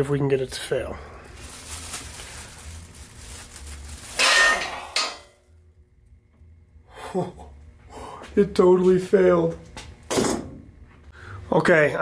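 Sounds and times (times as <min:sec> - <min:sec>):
metallic clank with ringing: 0:04.2 - 0:05.3.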